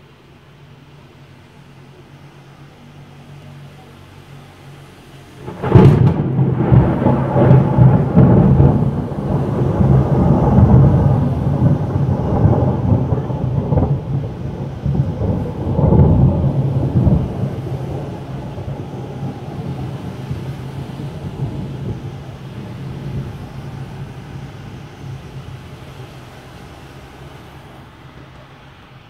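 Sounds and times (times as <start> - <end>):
rolling thunder rumble: 0.0 - 29.0
sharp thunder crack: 5.4 - 27.1.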